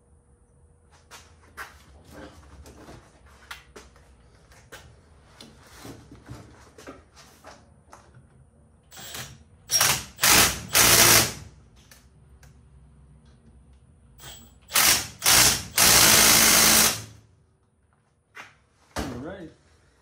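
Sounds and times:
cordless power driver bursts: 0:08.9 - 0:11.4.

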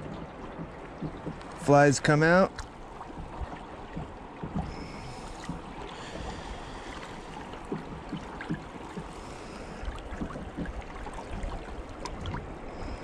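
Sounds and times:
light clicks and knocks: 0:00.0 - 0:06.3
water lapping against boat hull: 0:00.0 - 0:13.0.

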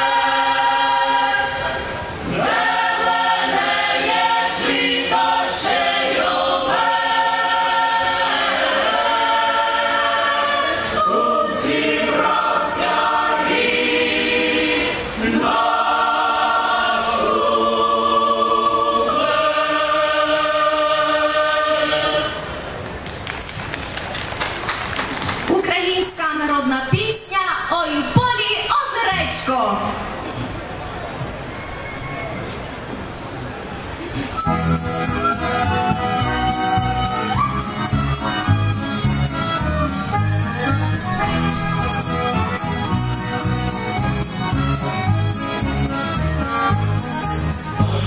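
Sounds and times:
mixed choir singing in harmony: 0:00.0 - 0:22.8, 0:34.4 - 0:38.3.

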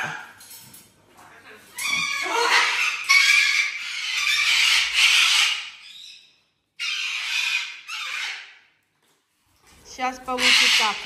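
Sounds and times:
parrot screeching: 0:01.7 - 0:08.7, 0:10.3 - 0:11.0.

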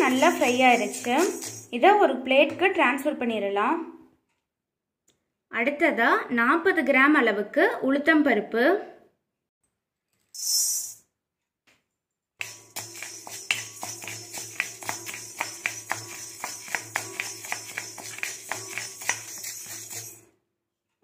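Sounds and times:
dry grains rattling in wok: 0:00.0 - 0:01.8, 0:12.4 - 0:20.3
spatula scraping pan: 0:00.0 - 0:01.8, 0:12.4 - 0:20.3.

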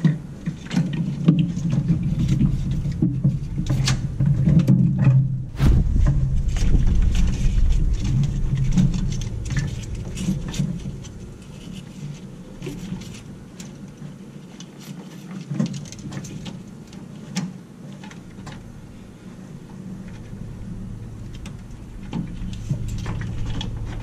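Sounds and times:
low rumble: 0:05.2 - 0:14.2, 0:18.3 - 0:24.0.

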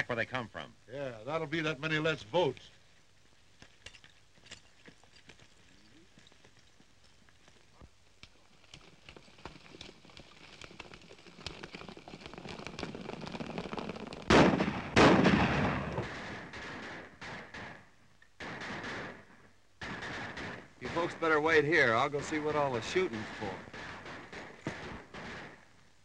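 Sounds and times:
hoofbeats: 0:01.8 - 0:14.9, 0:19.8 - 0:25.9
gunshots: 0:14.3 - 0:25.9.

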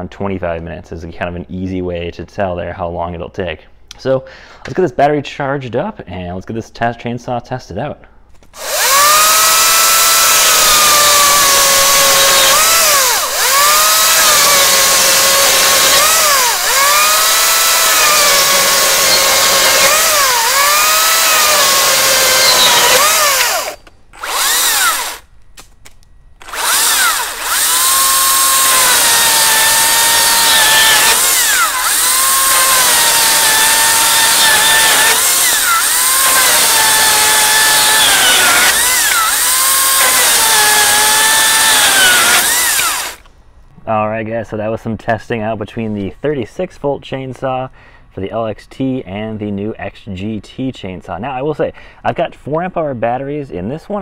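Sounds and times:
electric motor whine: 0:08.6 - 0:25.2, 0:26.4 - 0:43.3
chainsaw cutting wood: 0:08.6 - 0:25.3, 0:26.4 - 0:43.3.

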